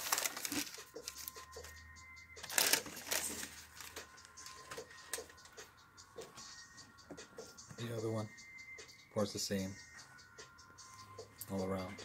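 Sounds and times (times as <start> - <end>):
tissue paper rustling: 0.0 - 1.4, 2.4 - 4.0.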